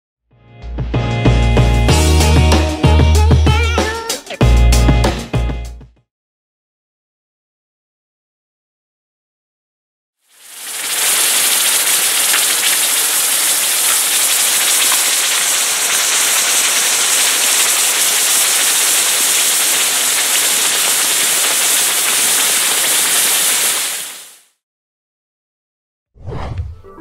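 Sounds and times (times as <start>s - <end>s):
steady hiss: 10.4s - 24.4s.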